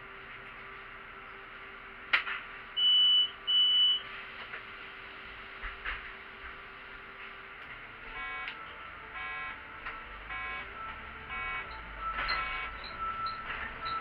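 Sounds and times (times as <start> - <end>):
steady low bus hum: 0.0 - 14.0
high electronic beeps: 2.8 - 4.0, 8.2 - 8.6, 10.3 - 14.0.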